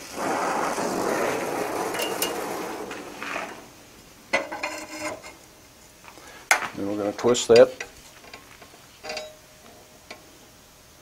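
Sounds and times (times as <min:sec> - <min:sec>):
gas torch flame hissing: 0:00.0 - 0:09.0
wrench clinking on steel bar: 0:09.0 - 0:09.4.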